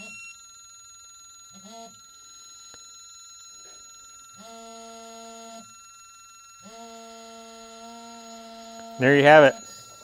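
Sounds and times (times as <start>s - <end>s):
torque wrench buzzing alert: 0.0s - 10.0s.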